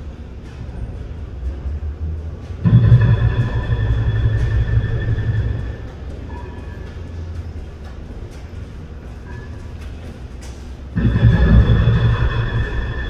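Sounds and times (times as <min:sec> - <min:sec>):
demolition rumble: 0:00.0 - 0:09.1, 0:10.9 - 0:13.0
metallic squealing: 0:02.6 - 0:07.8, 0:11.0 - 0:13.0.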